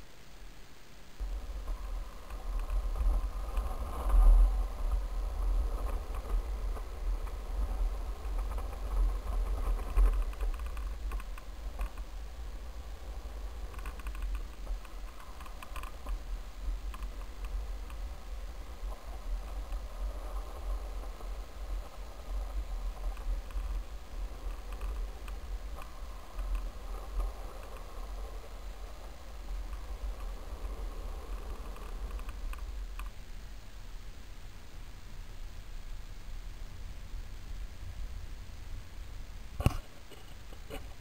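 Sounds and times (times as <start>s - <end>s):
wheels rolling on asphalt: 0.0s - 41.0s
wind buffeting microphone: 1.2s - 33.0s
small clicks and rattles: 1.2s - 33.2s.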